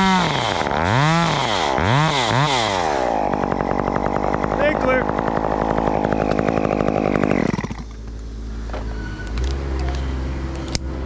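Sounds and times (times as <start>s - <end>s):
chainsaw running: 0.0s - 8.3s.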